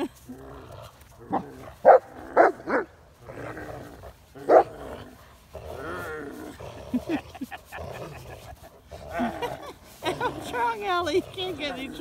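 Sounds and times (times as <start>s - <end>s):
dog growling: 0.0s - 12.0s
dog barking: 1.8s - 2.8s.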